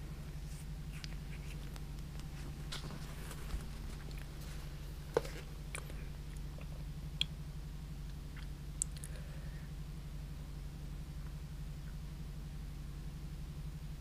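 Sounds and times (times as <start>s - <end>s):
steady low hum: 0.0s - 14.0s
clicks and rustles of plants: 0.4s - 6.7s.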